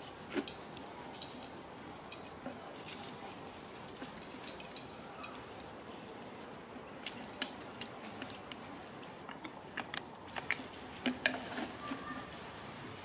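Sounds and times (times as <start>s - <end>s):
faint steady hiss: 0.0s - 13.0s
macaques clicking: 3.9s - 12.3s.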